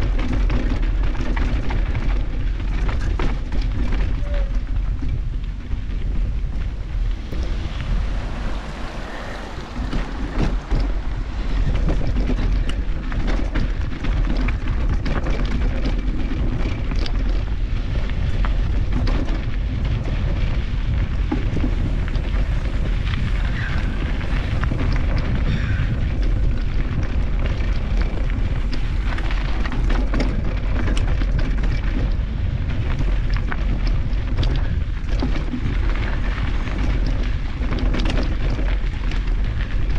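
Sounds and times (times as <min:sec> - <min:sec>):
bike clicks and rattles: 0:00.0 - 0:39.9
wind buffeting microphone: 0:00.0 - 0:39.9.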